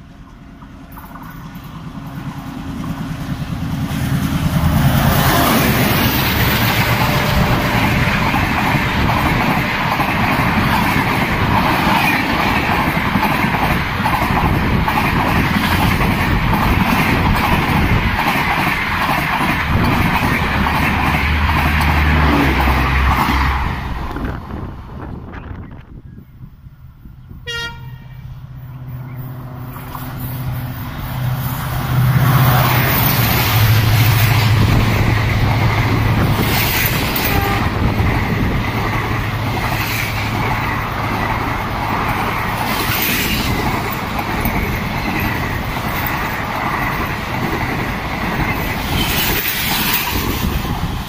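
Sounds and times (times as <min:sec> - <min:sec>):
train wheels rumbling on rails: 0:00.0 - 0:51.0
locomotive horn blast: 0:06.5 - 0:08.6, 0:27.4 - 0:28.4, 0:37.2 - 0:37.9.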